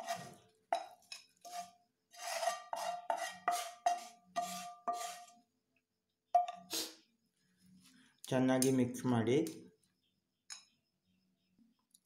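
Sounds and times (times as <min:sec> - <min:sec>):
utensil scraping a pan: 0:00.0 - 0:05.4.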